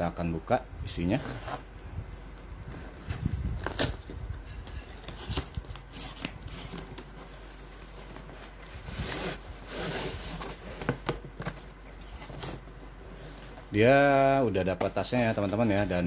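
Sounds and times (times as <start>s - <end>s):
cardboard scraping and rustling: 5.0s - 16.0s.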